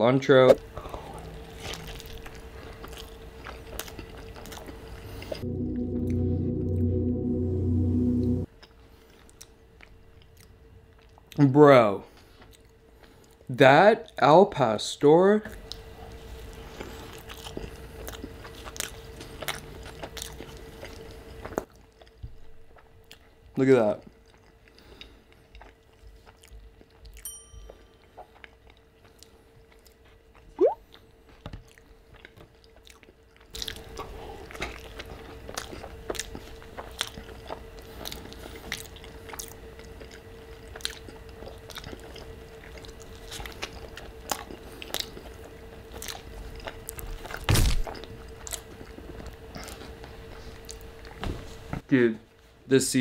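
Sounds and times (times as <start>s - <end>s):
wet chewing mouth clicks: 1.3s - 5.4s, 31.7s - 49.9s
steady hum: 4.8s - 8.5s.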